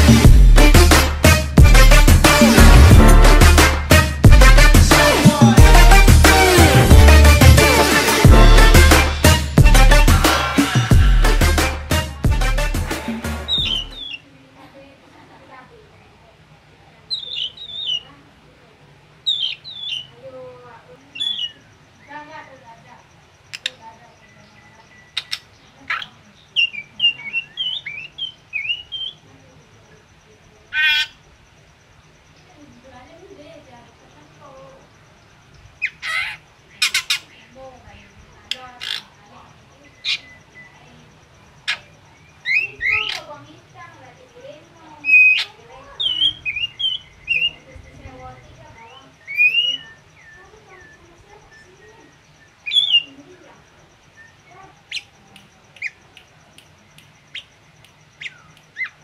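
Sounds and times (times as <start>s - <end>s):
harsh bird call: 13.1s - 14.3s, 17.1s - 18.1s, 19.2s - 20.3s, 21.0s - 22.3s, 35.8s - 37.6s, 40.0s - 43.5s, 45.0s - 48.0s, 48.7s - 53.4s
bird singing: 13.1s - 14.5s, 17.0s - 18.2s, 19.1s - 59.0s
sharp bird clicks: 23.4s - 24.0s, 24.8s - 29.2s, 38.4s - 39.1s, 51.5s - 53.1s, 54.1s - 59.0s.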